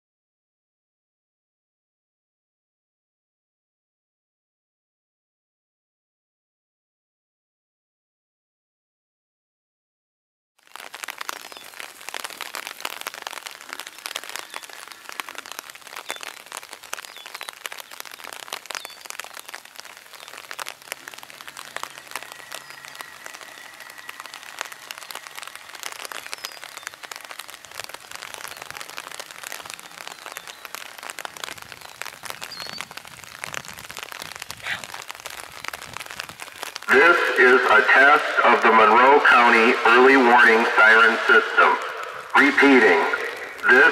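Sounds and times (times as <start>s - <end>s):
rain on an umbrella: 10.6s - 43.9s.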